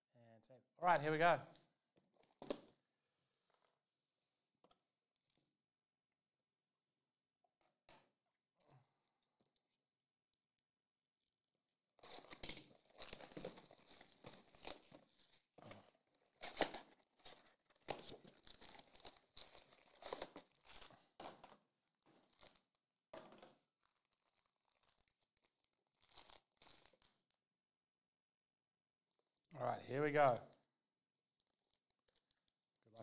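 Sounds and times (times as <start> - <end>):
foil packs rustling: 12.0 - 21.5
plastic wrap tearing and crinkling: 12.0 - 22.7, 23.3 - 27.3, 31.4 - 32.6.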